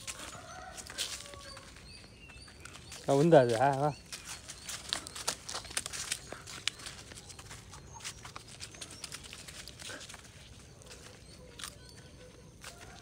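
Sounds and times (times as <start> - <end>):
clicks and rustles on dry leaves: 0.0 - 13.0.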